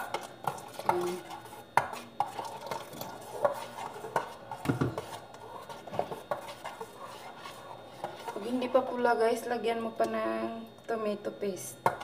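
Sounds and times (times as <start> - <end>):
spoon stirring thick sauce: 0.0 - 9.0.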